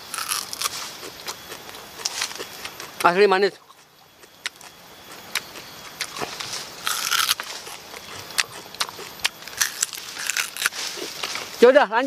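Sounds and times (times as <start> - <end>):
biting and tearing plant stem: 0.0 - 2.5, 5.4 - 11.4.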